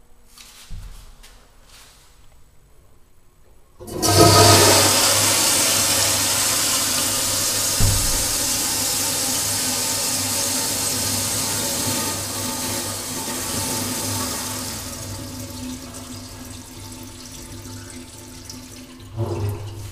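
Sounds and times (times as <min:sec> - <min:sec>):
toilet flushing: 0:03.8 - 0:19.9
low thump: 0:07.8 - 0:08.6.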